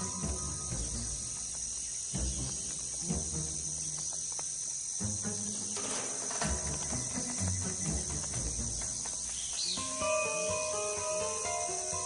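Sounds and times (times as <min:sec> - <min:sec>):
insect chorus: 0:00.0 - 0:12.0.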